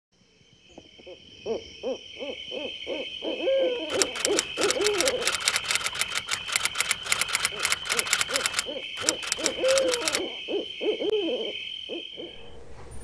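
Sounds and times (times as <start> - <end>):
typewriter key clicks: 3.9 - 10.2.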